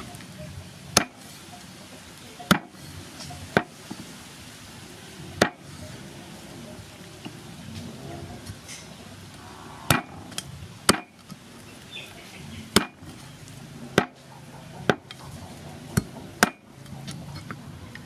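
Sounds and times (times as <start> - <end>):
cleaver chopping through bone: 10.9 - 11.1, 12.7 - 13.0, 14.0 - 14.2, 15.9 - 16.6.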